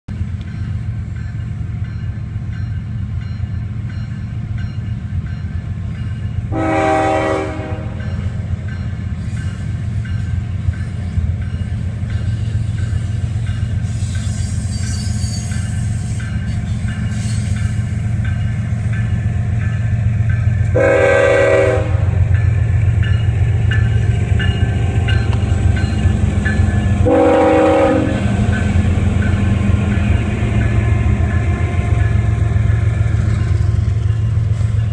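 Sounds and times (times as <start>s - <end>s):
diesel locomotives rumbling: 0.1s - 34.9s
locomotive air horn blasts: 6.5s - 8.0s, 20.7s - 22.2s, 27.0s - 28.4s.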